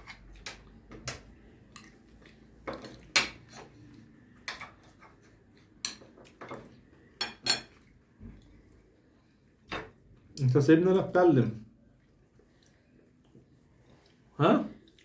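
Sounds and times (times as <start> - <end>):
cutlery clinking on plates: 5.8 - 7.8.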